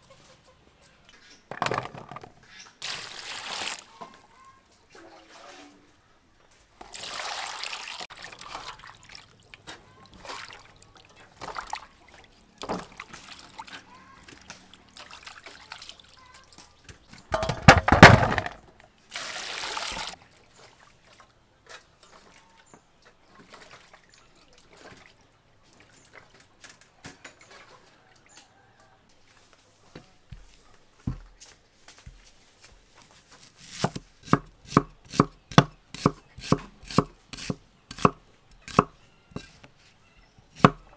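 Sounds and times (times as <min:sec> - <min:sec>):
water splashing in a metal bowl: 0:06.8 - 0:16.7, 0:23.4 - 0:25.2.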